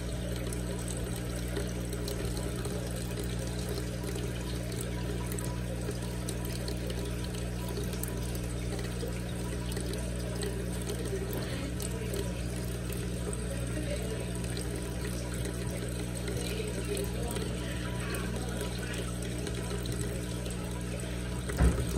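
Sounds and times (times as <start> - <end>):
water trickling and gurgling: 0.0 - 21.9.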